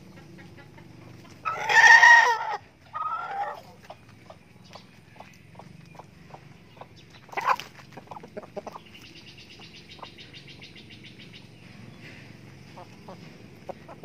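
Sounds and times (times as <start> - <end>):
chickens clucking: 0.0 - 14.0
chicken squawk: 0.1 - 4.0, 7.3 - 8.8.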